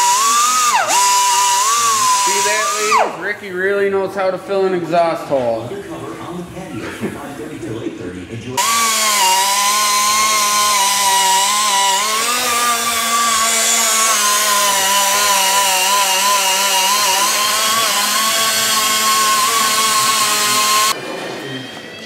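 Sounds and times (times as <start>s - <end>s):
pneumatic die grinder whining: 0.0s - 3.2s, 8.6s - 21.0s.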